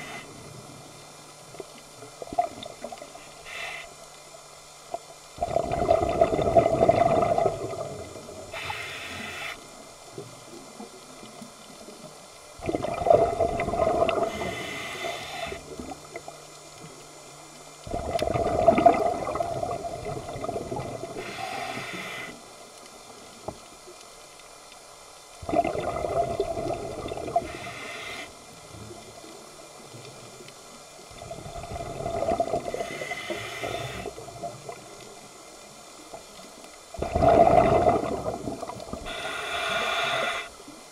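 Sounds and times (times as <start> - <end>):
regulator hiss: 0.0 - 1.4, 3.0 - 4.8, 8.1 - 10.5, 14.1 - 17.8, 21.0 - 23.3, 27.2 - 31.1, 32.6 - 36.5, 38.7 - 40.9
exhaled bubbles gushing: 5.4 - 8.5, 12.6 - 14.6, 17.9 - 21.2, 25.4 - 27.6, 31.1 - 33.4, 37.0 - 39.2.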